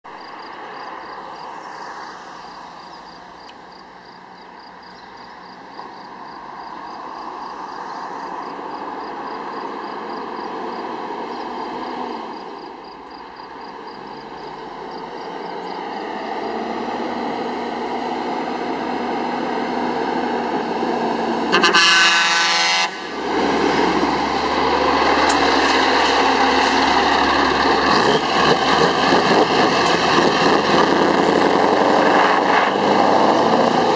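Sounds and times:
truck diesel engine: 2.5 - 33.9
truck horn blast: 21.5 - 23.1.

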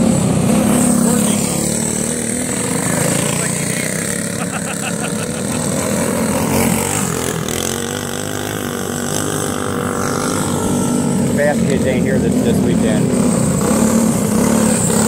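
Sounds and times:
go-kart engines racing: 0.0 - 15.0.

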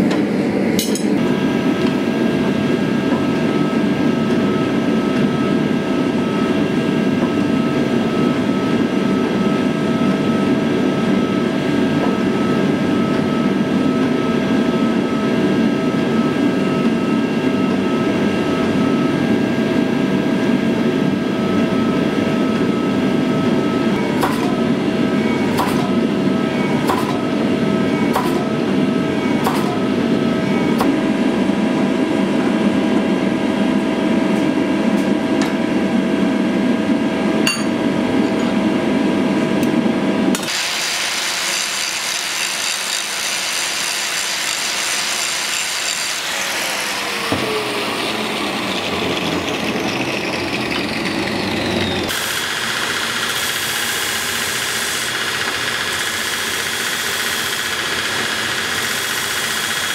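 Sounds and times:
forging press roaring and whining: 0.0 - 59.9
sharp metal knocks: 37.5 - 37.8.

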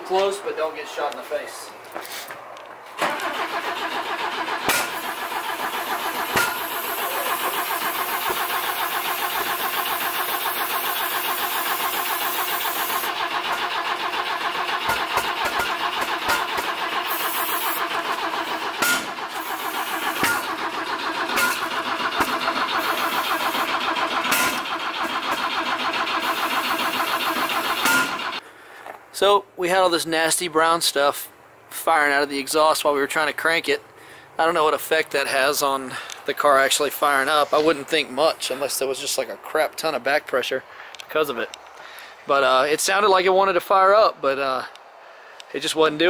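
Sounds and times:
exhaust pops: 3.0 - 28.3
car engine cranking on starter: 3.0 - 28.4.

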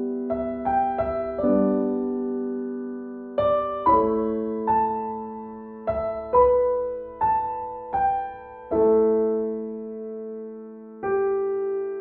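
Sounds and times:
slow gentle piano music: 0.0 - 12.0.

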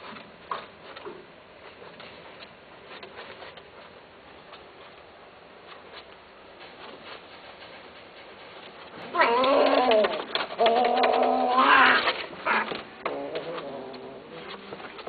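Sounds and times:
cat yowling: 9.1 - 14.3.

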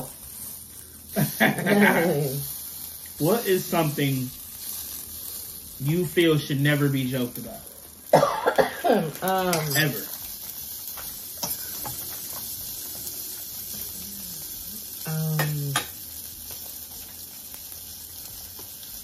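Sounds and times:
sausages sizzling on a grill: 0.0 - 19.0
person humming: 1.2 - 2.4, 13.9 - 15.8.

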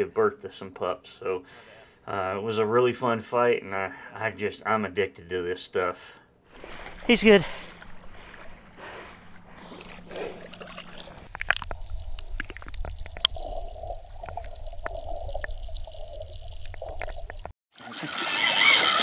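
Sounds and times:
open-air shoreline sound: 6.5 - 19.0
muffled underwater rumble: 6.7 - 17.5
underwater clicks and ticks: 6.8 - 17.5.

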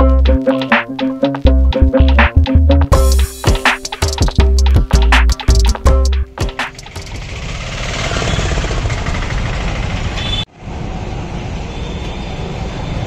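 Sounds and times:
street traffic noise: 4.2 - 13.0.

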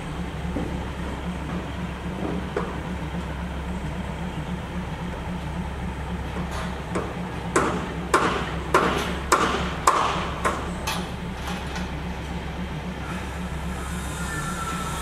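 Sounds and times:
low engine hum: 0.0 - 15.0
train wheels clanking: 6.2 - 15.0.

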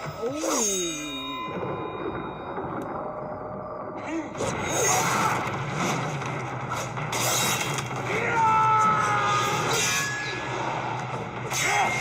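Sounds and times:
film soundtrack music: 0.0 - 12.0
steel blades grinding: 0.3 - 1.5.

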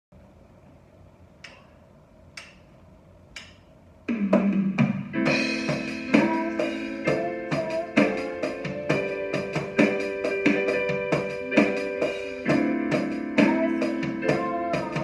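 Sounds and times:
electronic drum hits: 4.1 - 15.0
electronic keyboard chords: 5.0 - 15.0.

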